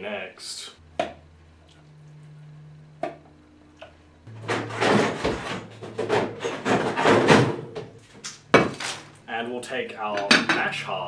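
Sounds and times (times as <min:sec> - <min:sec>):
objects knocking and rattling: 0:04.3 - 0:09.1.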